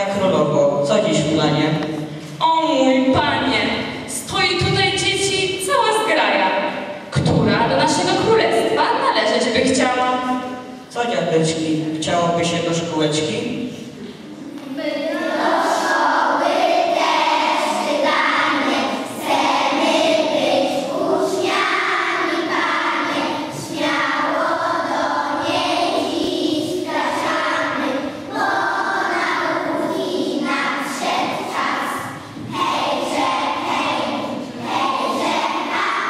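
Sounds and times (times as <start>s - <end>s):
children singing in unison: 14.4s - 36.0s.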